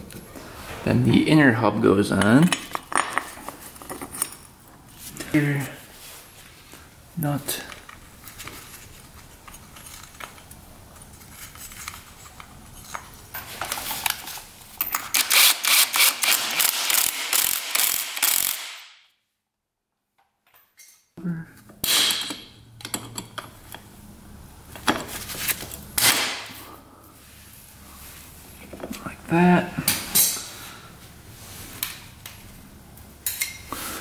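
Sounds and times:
ratchet wrench clicking: 15.1 - 18.8.

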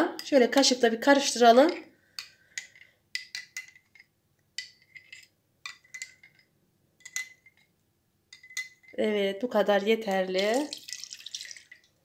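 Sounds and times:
metal spoon clinking in glass: 2.2 - 7.7, 8.3 - 9.0.

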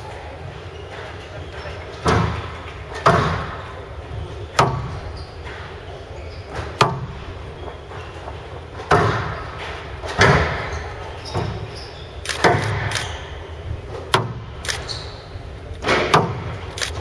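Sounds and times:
squash ball hits echoing: 2.0 - 3.9, 4.5 - 5.2, 6.5 - 7.3, 8.8 - 11.7, 14.1 - 14.6, 15.8 - 16.7.

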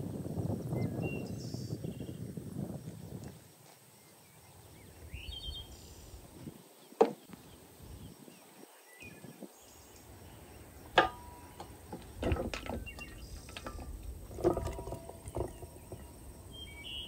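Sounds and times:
wind rumbling on microphone: 0.0 - 17.0
metal bowls knocking and clattering: 10.9 - 16.5.

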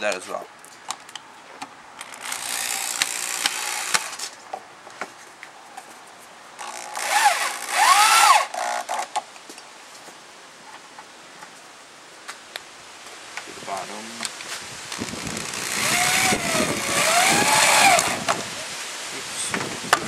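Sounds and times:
electric drill driving screws: 2.0 - 4.2, 6.6 - 9.1, 15.0 - 18.4.

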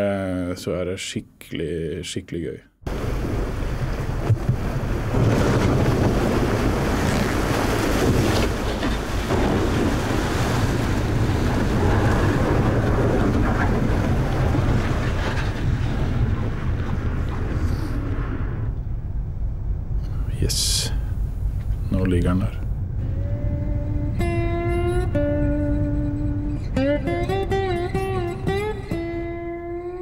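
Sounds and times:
ship hull grinding through ice: 2.9 - 18.5
wind buffeting microphone: 2.9 - 20.3, 20.9 - 29.3.

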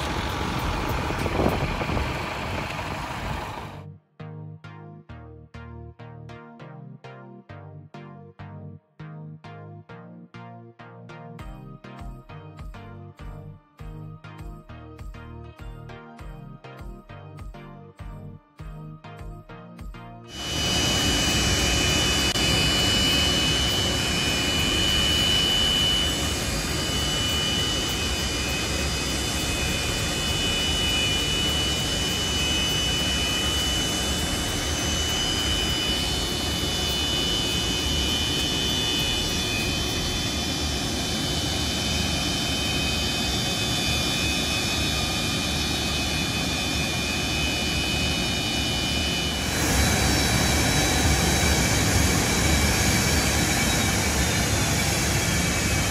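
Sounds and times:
jet engines at taxi power: 0.0 - 3.8, 20.3 - 55.9
high engine whine: 0.0 - 3.9, 20.3 - 55.9.

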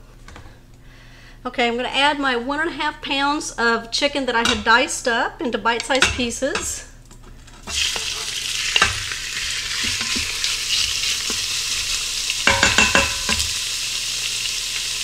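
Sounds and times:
wooden spatula scraping pot: 7.6 - 11.4
chicken sizzling in hot oil: 7.7 - 15.0.

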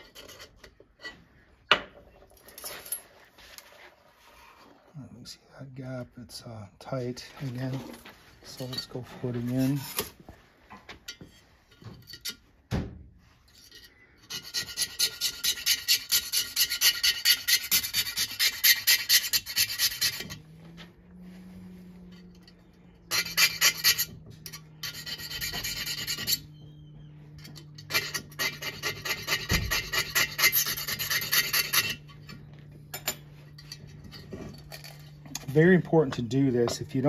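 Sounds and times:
metal file rasping on metal: 14.2 - 20.5, 22.0 - 26.7, 27.3 - 32.4.

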